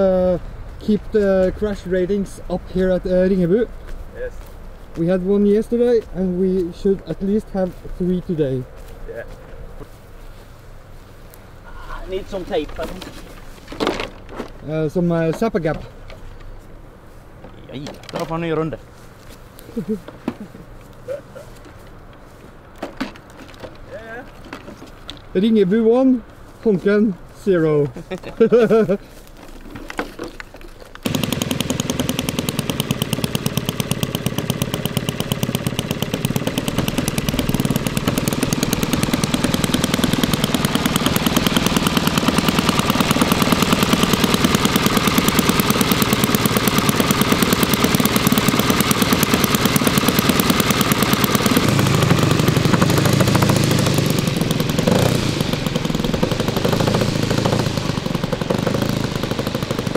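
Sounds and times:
model plane engine running: 31.0s - 59.9s.

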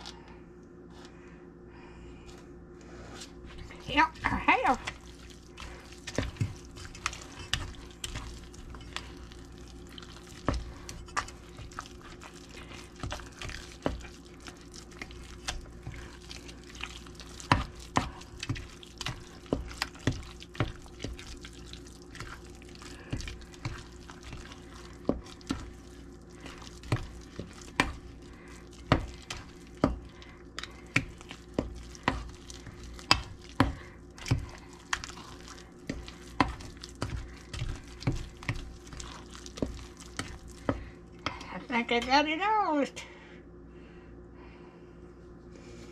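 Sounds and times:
batter squishing: 2.9s - 42.3s.

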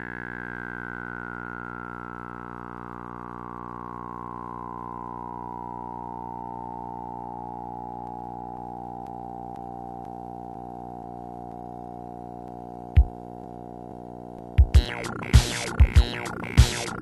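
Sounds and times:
synthesizer droning chord: 14.5s - 17.0s.

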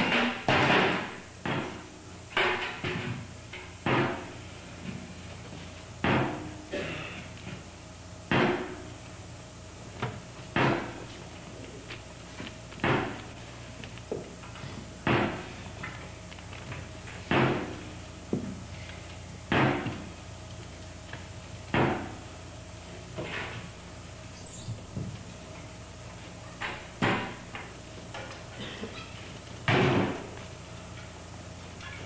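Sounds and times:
dancers' knocks and scuffs: 24.6s - 25.3s.

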